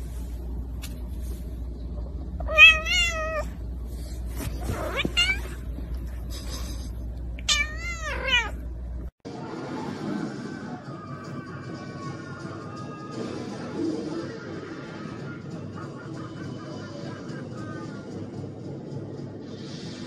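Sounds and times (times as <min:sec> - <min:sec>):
low steady hum: 0:00.0 - 0:09.1
cat meowing: 0:02.4 - 0:03.6, 0:04.7 - 0:05.6, 0:07.4 - 0:08.6.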